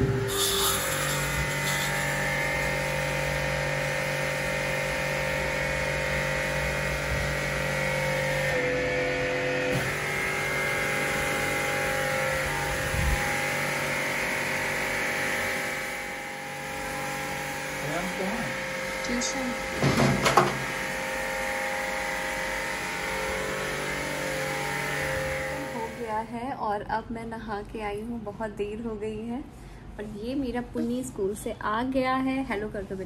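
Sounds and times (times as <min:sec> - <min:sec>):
electric water pump humming: 0:00.0 - 0:26.4.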